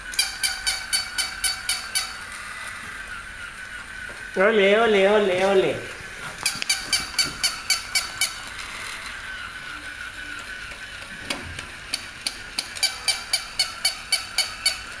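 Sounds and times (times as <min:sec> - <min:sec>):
toy gear mechanism clicking: 0:00.0 - 0:04.1, 0:06.4 - 0:15.0
toy motor whining: 0:00.0 - 0:15.0.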